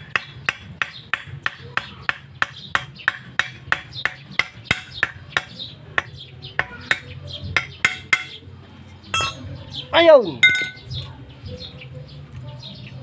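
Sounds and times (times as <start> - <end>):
hammer striking metal pipe: 0.0 - 8.4, 9.2 - 9.5, 10.4 - 10.8.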